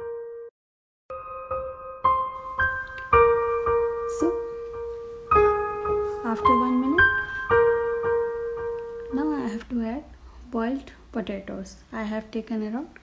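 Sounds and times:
slow piano music: 0.0 - 0.5, 1.1 - 9.8.

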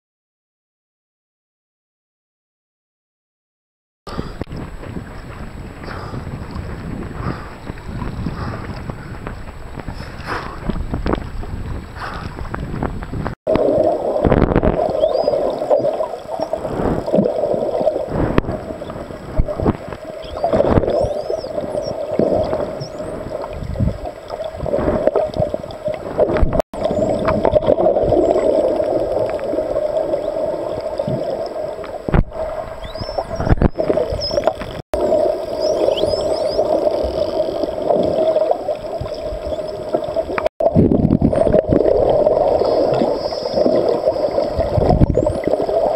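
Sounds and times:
swimming thuds and swishes: 4.1 - 26.6
muffled underwater rumble: 4.1 - 45.9
dolphin whistles: 14.9 - 16.5, 20.2 - 22.0, 32.8 - 34.5, 35.5 - 36.7.

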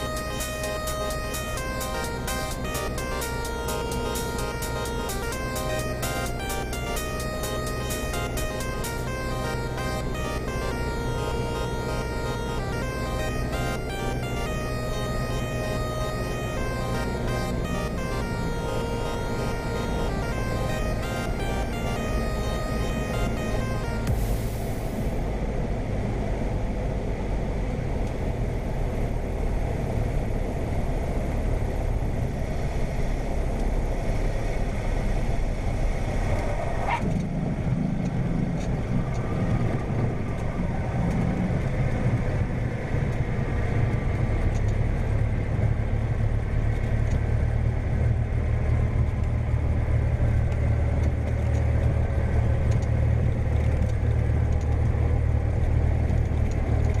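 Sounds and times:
aircraft engine drone: 0.0 - 36.4.

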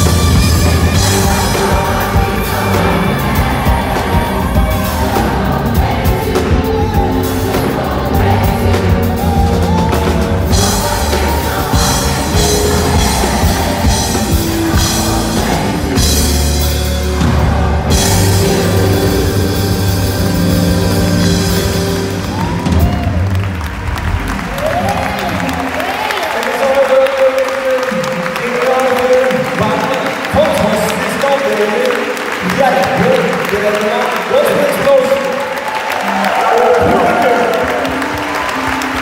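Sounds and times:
choir singing: 0.0 - 22.2
drums and cymbals: 0.0 - 23.6
bass guitar: 0.0 - 26.0
keyboard: 0.0 - 39.0.

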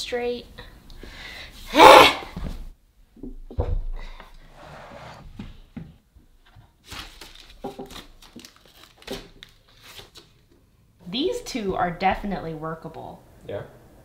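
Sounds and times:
wooden boxes scraping: 4.5 - 5.6.

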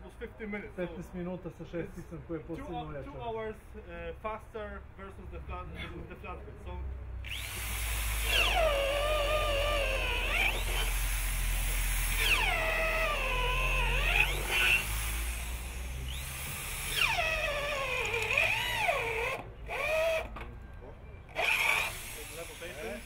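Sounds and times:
power drill boring into wood: 7.2 - 20.3, 21.3 - 23.0.

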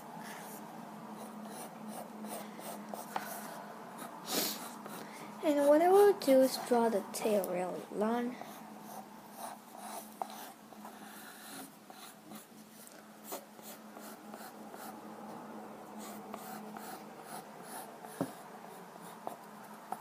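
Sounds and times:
faint hum: 0.0 - 20.0
pencil sketching on paper: 0.2 - 6.7, 8.4 - 15.0, 16.0 - 20.0.

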